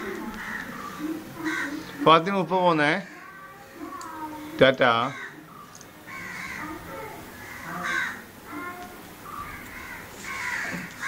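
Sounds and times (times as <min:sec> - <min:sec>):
crows cawing: 0:00.2 - 0:04.0, 0:04.9 - 0:11.0.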